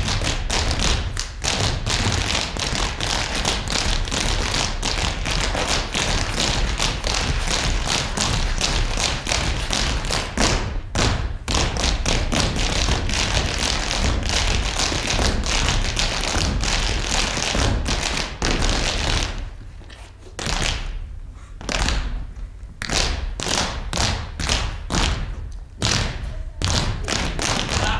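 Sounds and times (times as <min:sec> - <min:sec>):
feet stamping on stage floor: 0:00.0 - 0:21.0.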